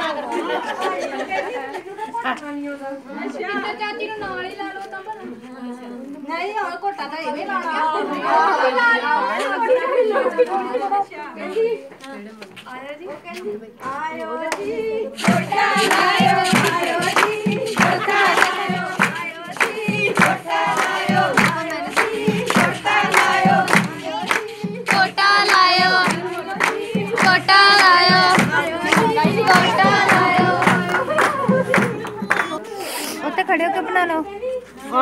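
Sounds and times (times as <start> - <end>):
women singing a folk song: 0.0 - 35.0
rhythmic hand clapping: 13.9 - 32.7.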